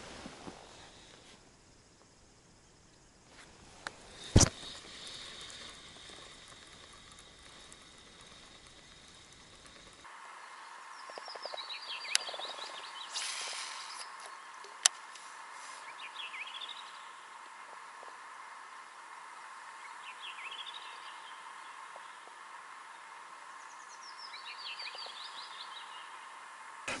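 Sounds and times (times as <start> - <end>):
small birds chirping: 0.6 - 27.0
brief hiss: 3.4 - 10.2, 12.9 - 16.6
sharp clicks: 11.1 - 12.7.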